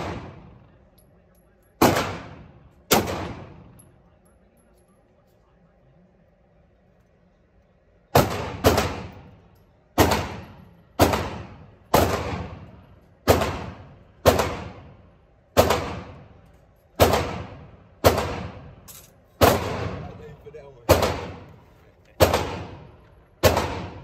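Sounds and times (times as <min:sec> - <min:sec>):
gunshots echoing indoors: 0:00.0 - 0:01.0, 0:01.7 - 0:03.9, 0:08.1 - 0:16.4, 0:17.0 - 0:20.2, 0:20.8 - 0:21.6, 0:22.2 - 0:24.0.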